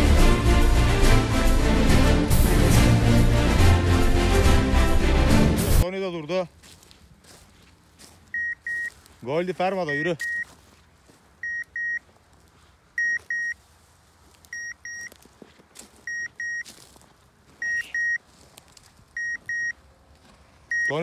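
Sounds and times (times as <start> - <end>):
short high beeps: 8.4 - 8.9, 9.8 - 10.5, 11.4 - 12.0, 13.0 - 13.6, 14.5 - 15.1, 16.1 - 16.7, 17.6 - 18.2, 19.2 - 19.8, 20.7 - 21.0.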